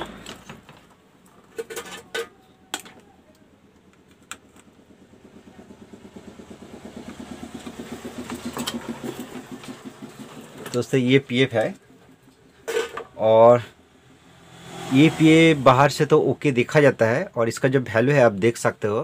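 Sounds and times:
fast engine-like pulsing: 4.8 - 12.3.

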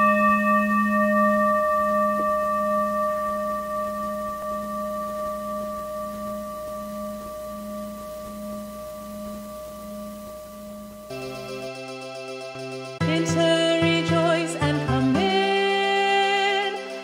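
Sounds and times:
low bell-like tone ringing: 0.0 - 13.0.

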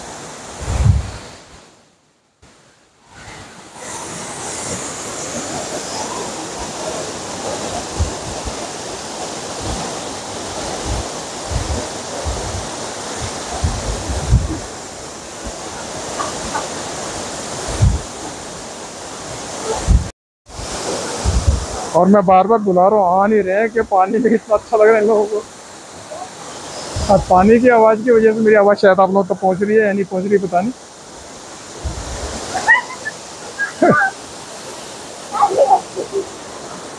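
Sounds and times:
waterfall crashing: 2.5 - 36.9
low thumps on microphone: 13.6 - 14.6, 17.7 - 18.1, 21.2 - 21.7.

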